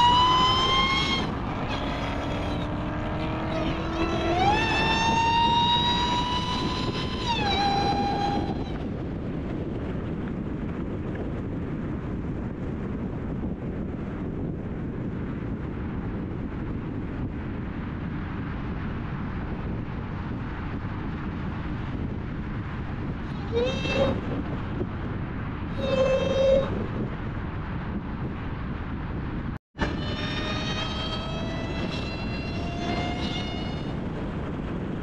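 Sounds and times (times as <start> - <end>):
supercharger whine: 0.0 - 9.9, 29.8 - 35.0
car wind and road noise: 0.0 - 35.0.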